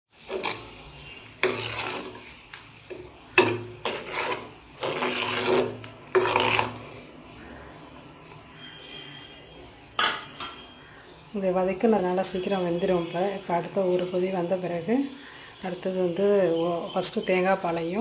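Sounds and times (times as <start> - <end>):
curry boiling: 0.1 - 10.2
spatula scraping clay pot: 0.2 - 2.4, 3.3 - 7.0.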